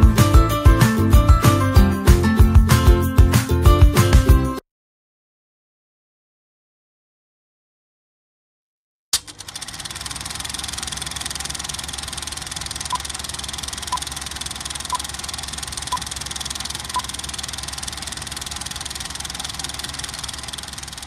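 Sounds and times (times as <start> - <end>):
film projector clattering: 9.2 - 21.0.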